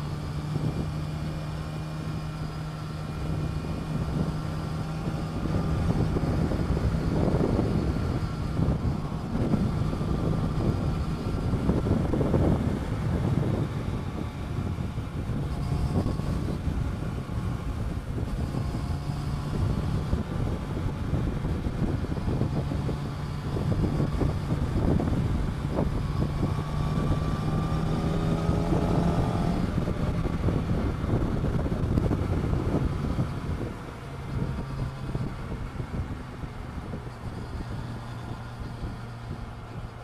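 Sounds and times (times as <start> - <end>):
motorcycle engine running: 0.0 - 40.0
wind noise on microphone: 0.0 - 40.0.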